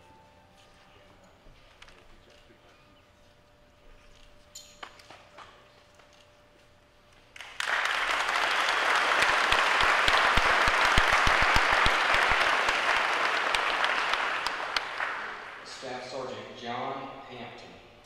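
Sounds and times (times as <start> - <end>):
crowd applauding: 7.4 - 15.9.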